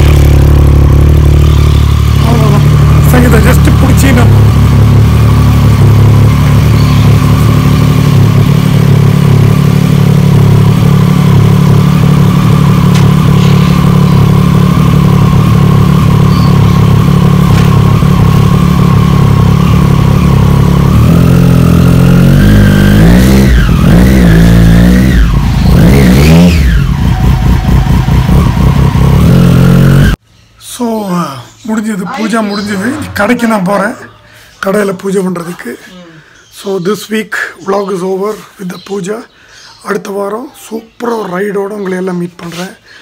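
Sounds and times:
motorcycle engine idling and revving: 0.0s - 30.2s.

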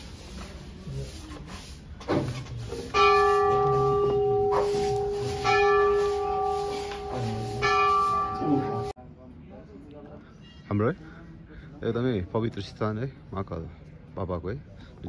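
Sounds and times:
temple bell ringing: 2.9s - 9.0s.

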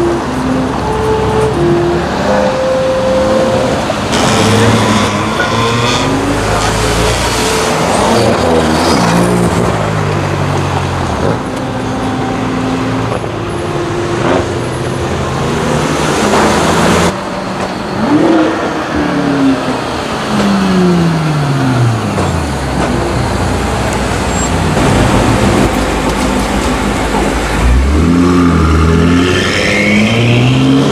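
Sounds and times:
car engine revving: 0.0s - 17.2s, 17.9s - 30.9s.

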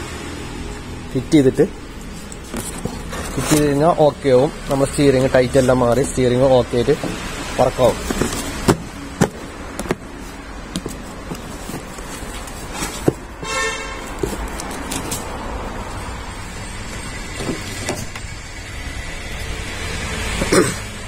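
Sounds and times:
cardboard box knocks and taps: 8.0s - 10.1s, 10.7s - 12.0s.

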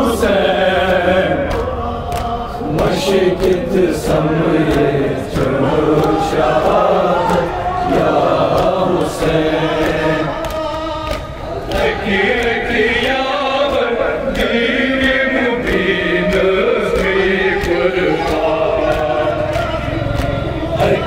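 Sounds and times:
group chanting a lament: 0.0s - 21.0s
hands slapping chests: 0.8s - 21.0s.

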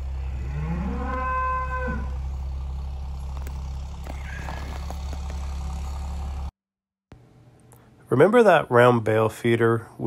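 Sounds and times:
engine idling: 0.0s - 6.5s.

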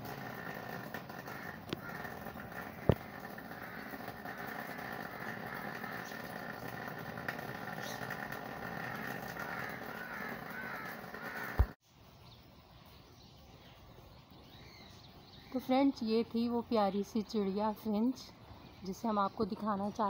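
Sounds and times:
birds calling: 0.1s - 11.8s.

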